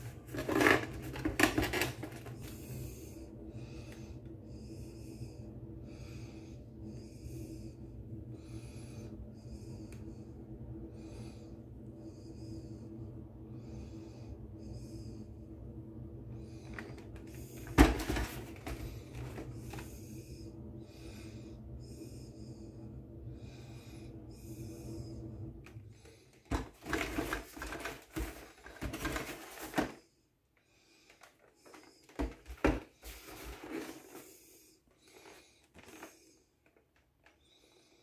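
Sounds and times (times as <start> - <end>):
cardboard box rustling and scraping: 0.0 - 2.5, 17.6 - 19.8, 26.6 - 30.0, 32.1 - 34.3
low steady hum: 0.0 - 38.0.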